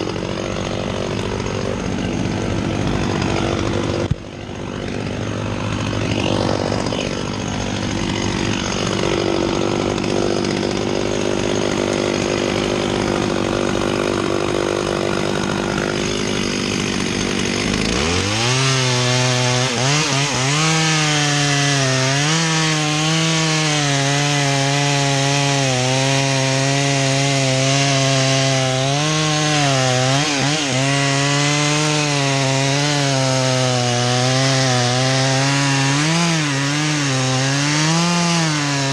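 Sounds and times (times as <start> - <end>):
chainsaw idling and cutting wood: 0.0 - 38.9.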